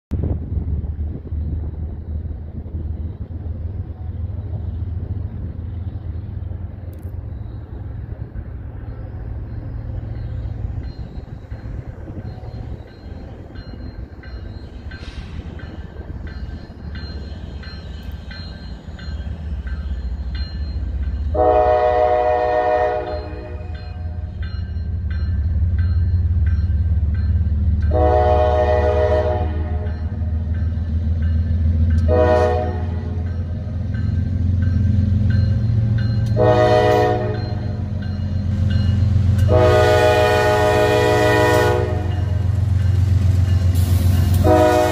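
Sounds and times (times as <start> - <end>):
diesel locomotive engine rumble: 0.1 - 44.9
train air horn blasts: 21.3 - 24.3, 27.9 - 30.0, 32.0 - 33.2, 36.4 - 37.8, 39.3 - 42.6, 43.8 - 44.9.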